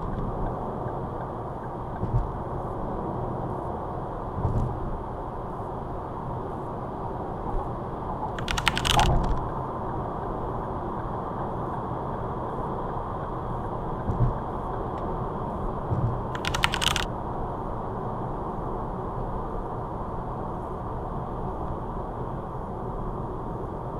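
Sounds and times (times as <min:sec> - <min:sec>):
road and tyre noise inside car: 0:00.0 - 0:23.9
rapid clicking: 0:08.4 - 0:09.5, 0:16.3 - 0:17.1.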